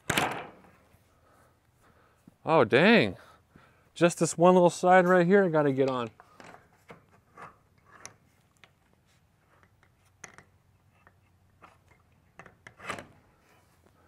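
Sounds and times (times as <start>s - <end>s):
fence panel clicks and scrapes: 9.6s - 13.6s.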